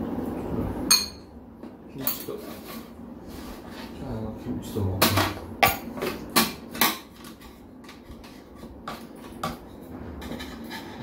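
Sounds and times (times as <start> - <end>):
chopsticks and spoon clinking bowls: 0.9 - 1.3.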